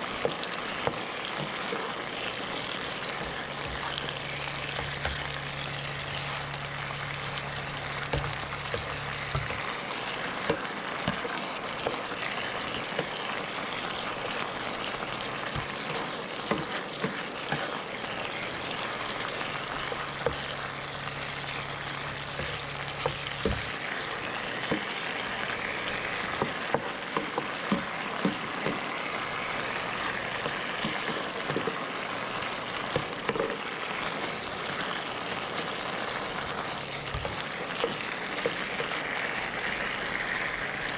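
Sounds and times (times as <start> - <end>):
sauce sizzling in frying pan: 0.0 - 40.9
spatula tapping and scraping pan: 0.2 - 1.8, 3.0 - 13.4, 15.1 - 17.8, 19.5 - 23.8, 24.6 - 25.0, 26.0 - 29.0, 30.3 - 31.8, 36.4 - 39.2.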